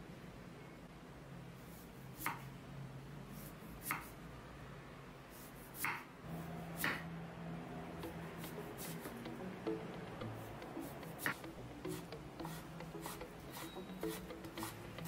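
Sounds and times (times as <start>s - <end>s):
knife cutting carrot on board: 1.9s - 2.5s, 3.4s - 4.2s, 5.3s - 6.1s, 6.8s - 7.1s, 10.6s - 15.0s.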